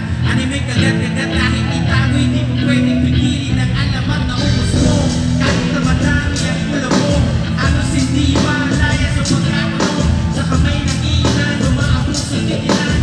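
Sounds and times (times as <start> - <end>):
rapping into a microphone: 0.0 - 13.0
loud backing beat with heavy bass: 3.8 - 13.0.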